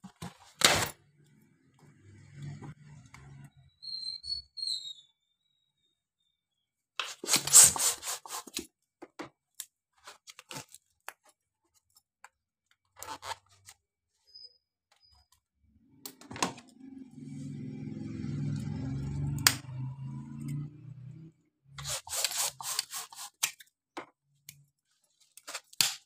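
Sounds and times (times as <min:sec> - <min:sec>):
balloons rubbing and squeaking: 0:07.0 - 0:08.6, 0:21.8 - 0:23.4.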